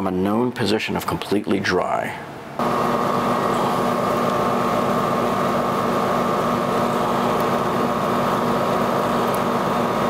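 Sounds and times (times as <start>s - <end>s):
machine hum with high whine: 2.4s - 10.0s.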